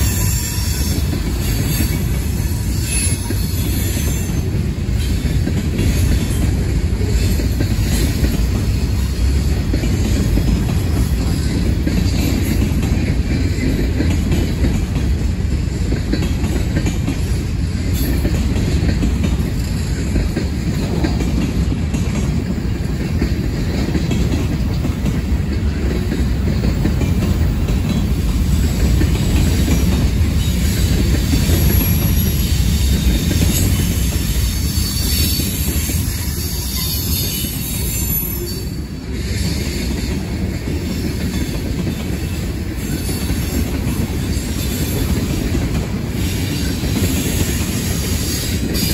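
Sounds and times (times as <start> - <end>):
high wheel squeal: 0.0 - 5.2, 30.4 - 39.8
freight cars rumbling on rails: 0.0 - 48.9.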